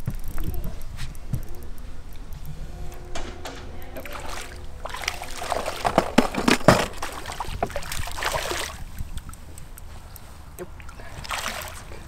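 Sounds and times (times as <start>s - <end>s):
fish splashing in water: 4.1s - 12.0s.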